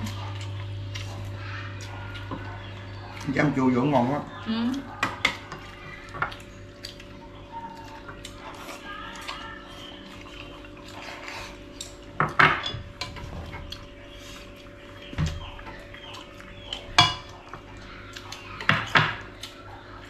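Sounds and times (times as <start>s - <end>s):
tableware clinking and scraping: 12.2s - 13.6s.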